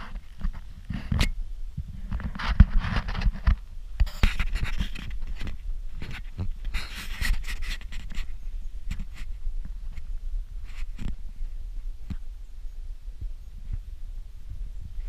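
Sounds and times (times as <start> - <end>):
low rumble: 8.3 - 15.0.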